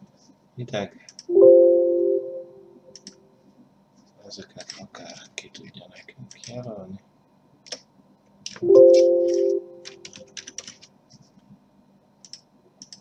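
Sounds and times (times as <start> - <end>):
computer alert chime: 1.3 - 2.8, 8.6 - 9.9
keyboard keystrokes: 3.0 - 3.2, 8.5 - 10.9, 12.2 - 13.0.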